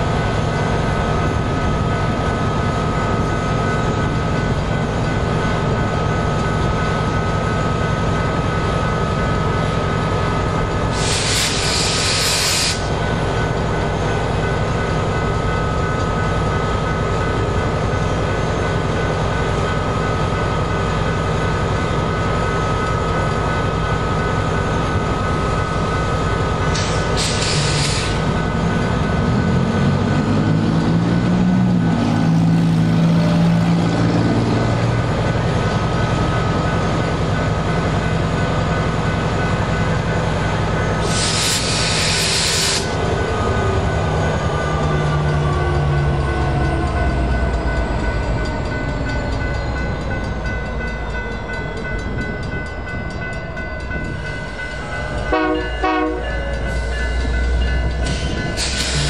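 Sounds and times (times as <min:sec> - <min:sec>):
freight train rumbling: 0:00.0 - 0:59.0
crossing signal ringing: 0:32.4 - 0:59.0.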